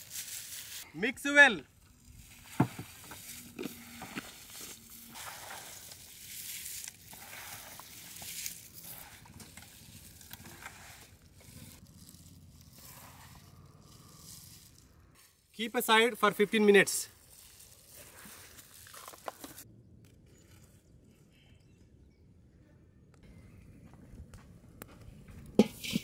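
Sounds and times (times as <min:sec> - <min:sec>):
hands mixing fish on a tray: 0:02.2 - 0:19.6.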